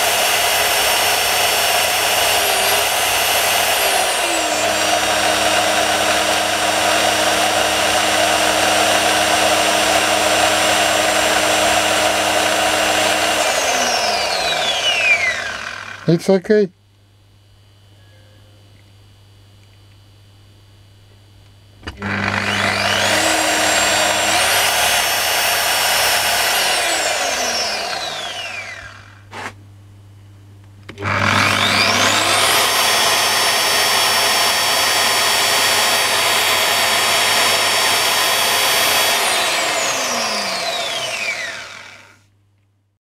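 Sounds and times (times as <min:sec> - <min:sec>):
electric polisher motor whining: 0:00.0 - 0:16.2, 0:21.9 - 0:29.2, 0:31.0 - 0:42.3
low mains hum: 0:15.9 - 0:22.1, 0:27.4 - 0:31.0.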